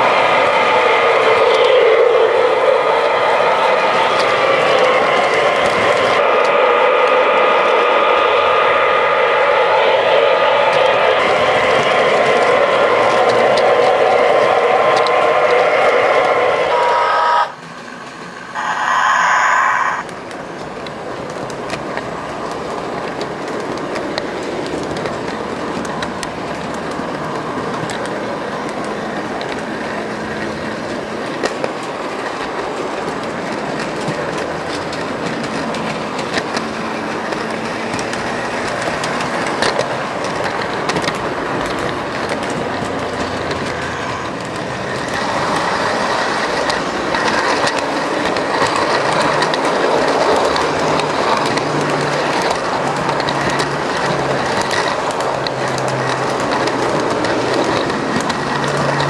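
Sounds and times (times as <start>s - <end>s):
model train motor and wheels rumbling: 0.0s - 59.0s
pitched tone: 18.5s - 20.1s
clicks over rail joints: 20.1s - 59.0s.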